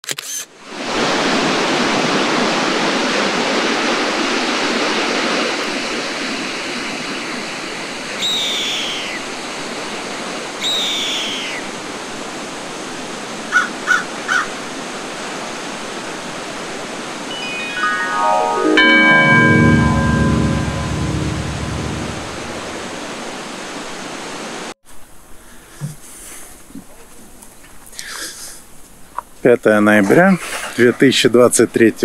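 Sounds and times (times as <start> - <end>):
bird whistled calls: 8.2 - 9.2, 10.6 - 11.6
waterfall rushing: 16.0 - 24.7.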